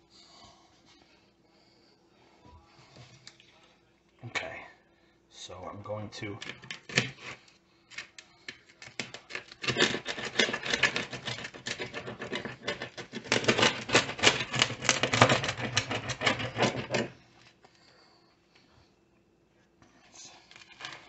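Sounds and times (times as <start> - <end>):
knife sawing through pizza crust: 9.2 - 17.1.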